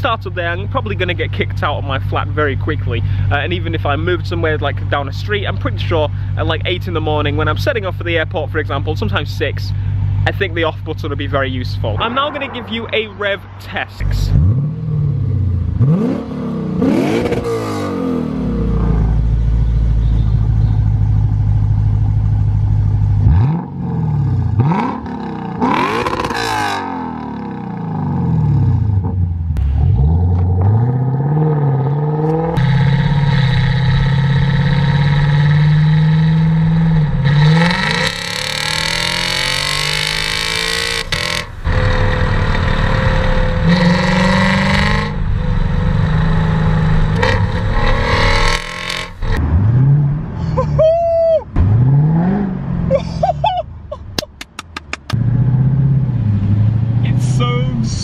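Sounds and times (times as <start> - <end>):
car engine idling and revving: 0.0 - 58.0
car engine accelerating hard: 14.0 - 50.4, 55.0 - 58.0.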